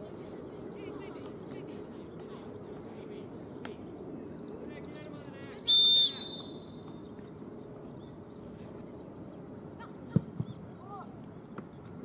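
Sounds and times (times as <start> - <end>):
open field ambience: 0.0 - 12.0
distant shouts: 4.9 - 6.9.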